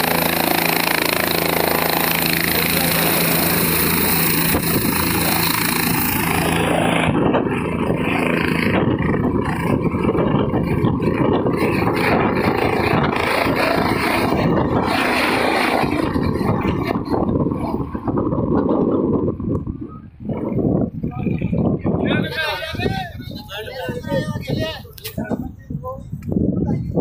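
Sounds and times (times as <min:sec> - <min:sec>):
helicopter turbine whine: 0:00.0 - 0:25.4
helicopter rotor noise: 0:00.0 - 0:25.8.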